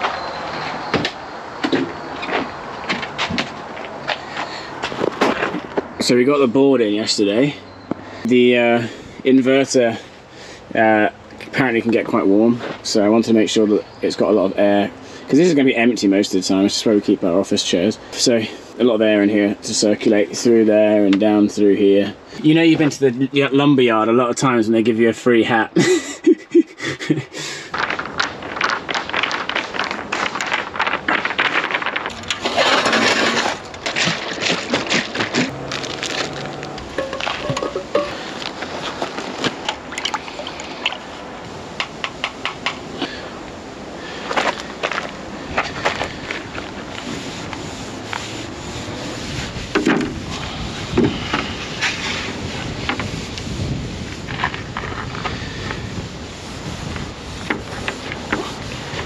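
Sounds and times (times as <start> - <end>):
rag rubbing on wooden boards: 27.8 - 39.6, 45.6 - 59.0
clicks and knocks of tools handled: 36.2 - 40.1
wind buffeting microphone: 48.7 - 59.0.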